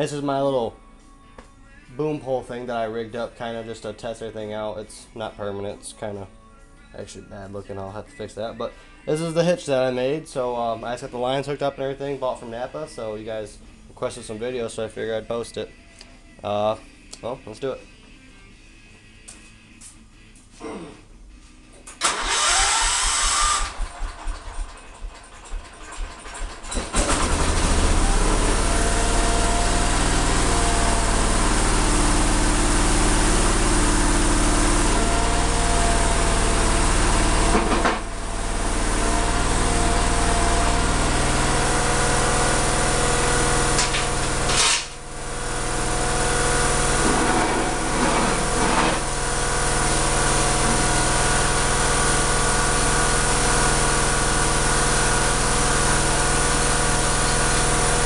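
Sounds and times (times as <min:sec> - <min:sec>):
small engine cranking and running: 0:22.0 - 0:28.6.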